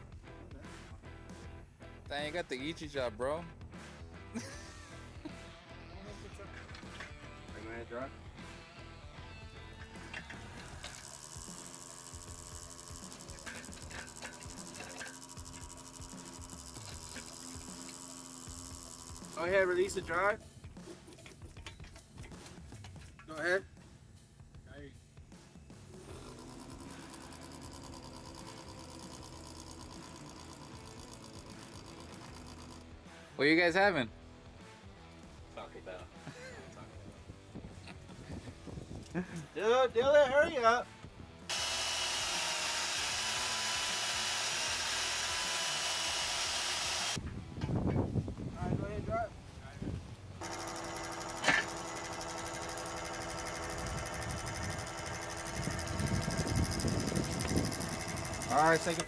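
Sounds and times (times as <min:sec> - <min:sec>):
hydraulic drive head whirring: 0:09.7 - 0:20.0, 0:26.1 - 0:32.9, 0:41.5 - 0:47.2, 0:50.4 - 0:59.0.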